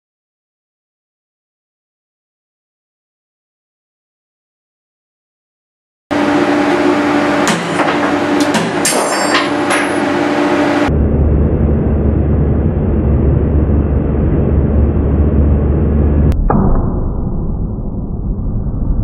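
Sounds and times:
test rig humming: 0:06.1 - 0:17.9
metallic ringing: 0:08.8 - 0:10.2.

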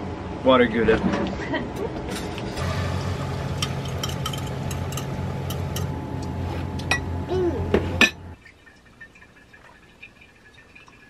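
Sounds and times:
steady low hum: 0:02.4 - 0:08.4
dishes and utensils clinking: 0:03.5 - 0:06.0, 0:07.8 - 0:08.3.

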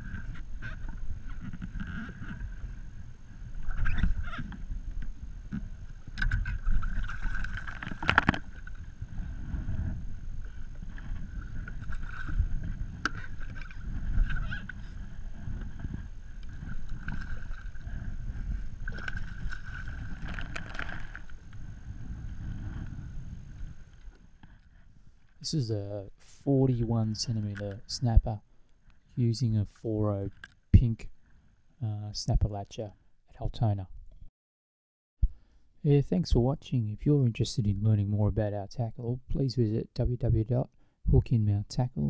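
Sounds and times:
water sloshing against kayak: 0:00.0 - 0:25.4
wind buffeting microphone: 0:08.4 - 0:23.9.

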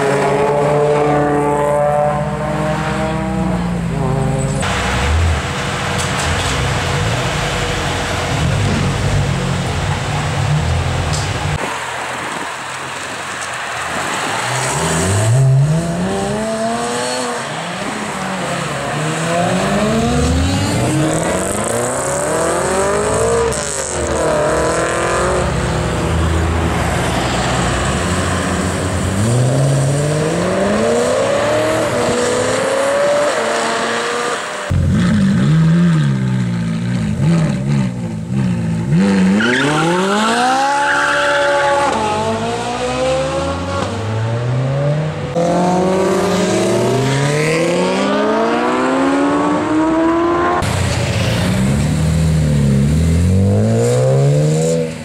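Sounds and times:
sports cars accelerating hard: 0:00.0 - 0:55.0.

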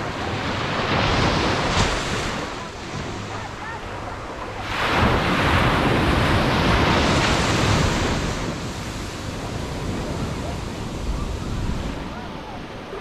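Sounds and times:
foamy wash rushing up sand: 0:00.0 - 0:13.0
wave breaking: 0:00.0 - 0:13.0.

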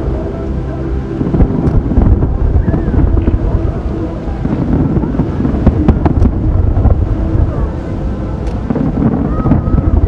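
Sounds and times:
wind buffeting microphone: 0:00.0 - 0:10.0
distant fireworks booming: 0:04.3 - 0:07.7, 0:08.4 - 0:10.0.

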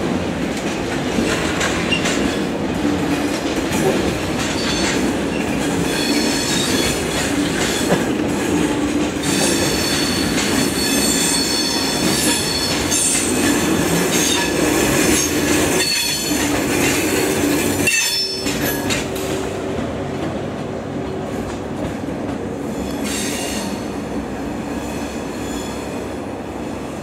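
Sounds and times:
train low rumble: 0:00.0 - 0:27.0
train wheels squealing: 0:04.5 - 0:07.9, 0:09.2 - 0:16.5, 0:17.8 - 0:19.0, 0:22.7 - 0:24.0, 0:24.7 - 0:26.1.

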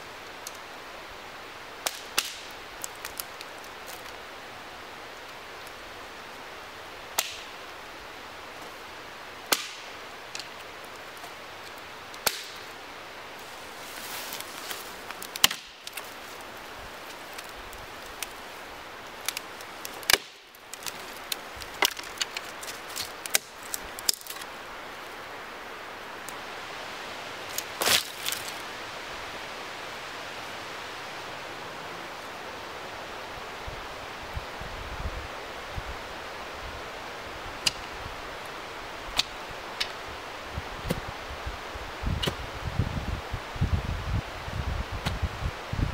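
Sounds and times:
dry branches snapping: 0:01.8 - 0:04.2, 0:07.1 - 0:07.5, 0:09.5 - 0:12.7, 0:13.4 - 0:24.6, 0:27.4 - 0:28.6, 0:37.6 - 0:37.9, 0:39.1 - 0:40.0.

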